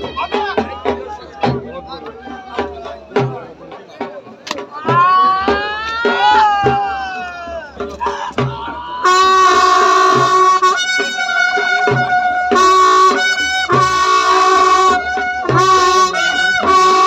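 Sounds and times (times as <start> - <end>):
deep drum beats: 0.0 - 17.0
shrill wind instrument melody: 7.8 - 17.0.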